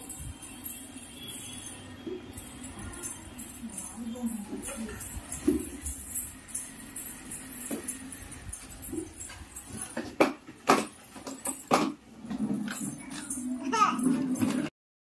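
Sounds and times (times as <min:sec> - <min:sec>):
light jingling: 0:00.0 - 0:14.4.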